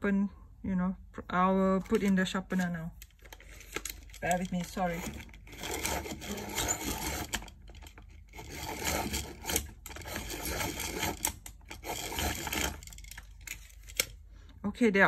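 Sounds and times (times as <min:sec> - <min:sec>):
pencil sharpener grinding: 0:03.2 - 0:14.1.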